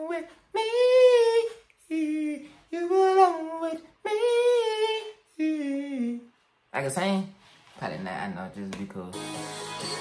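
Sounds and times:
high voice singing unaccompanied: 0.0s - 6.3s.

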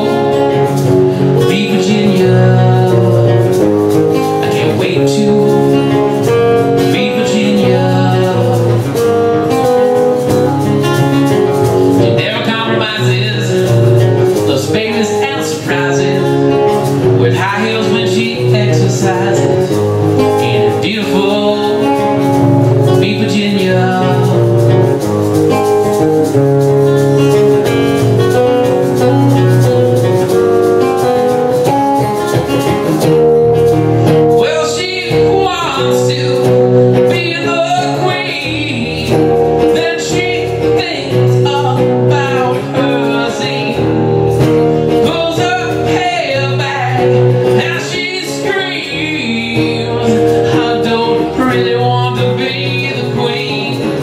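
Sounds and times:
man singing: 0.0s - 26.5s, 27.2s - 54.0s
acoustic guitars strumming: 0.0s - 54.0s.

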